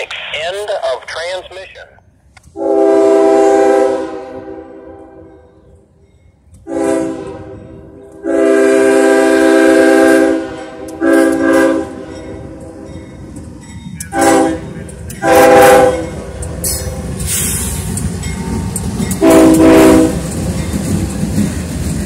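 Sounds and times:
low rumble of approaching train: 0:01.7 - 0:22.0
diesel locomotive air horn blasts: 0:02.5 - 0:05.5, 0:06.6 - 0:12.1, 0:14.1 - 0:16.1, 0:19.2 - 0:20.2.

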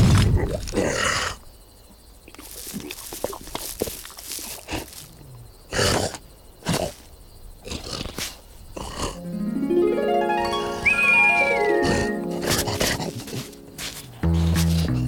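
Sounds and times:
cartoon animal grunts and growls: 0:07.6 - 0:09.2, 0:12.4 - 0:13.6.

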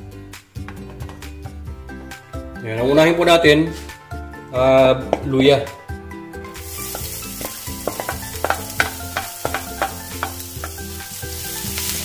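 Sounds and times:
wooden spoon tapping and scraping pan: 0:00.6 - 0:01.3, 0:06.9 - 0:10.9
ginger sizzling in hot oil: 0:06.5 - 0:12.0.

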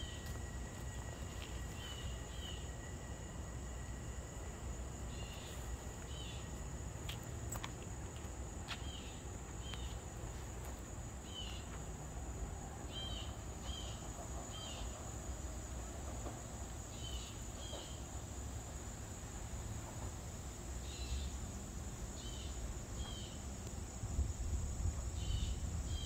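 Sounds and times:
high-pitched insect drone: 0:00.0 - 0:07.6.

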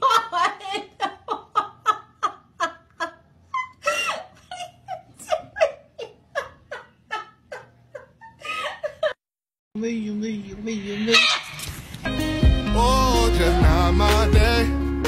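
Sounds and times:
person laughing in high bursts: 0:03.5 - 0:06.9.

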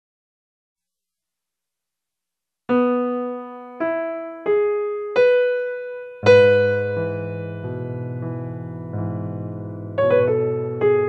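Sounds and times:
piano chord with bass notes: 0:02.7 - 0:11.0
slow piano melody: 0:02.7 - 0:11.0.

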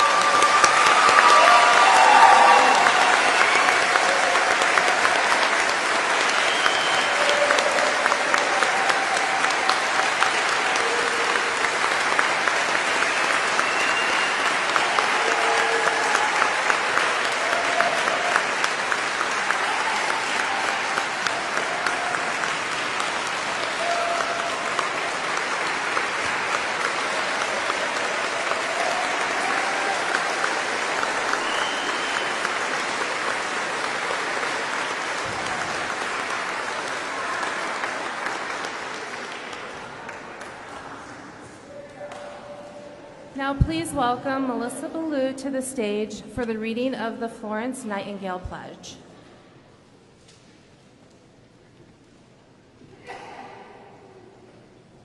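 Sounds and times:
audience applause: 0:00.0 - 0:43.0.

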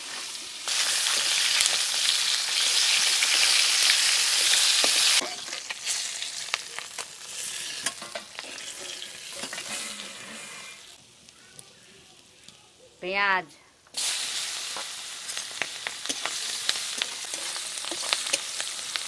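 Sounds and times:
fish frying in hot oil: 0:00.0 - 0:11.0, 0:14.0 - 0:19.0
metal spatula clicking and scraping: 0:16.0 - 0:19.0.

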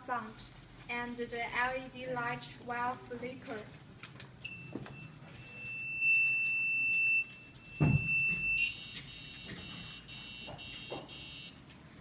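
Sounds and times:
buzzer high-pitched tone: 0:04.5 - 0:11.6
buzzer rough beeping: 0:04.5 - 0:11.6.

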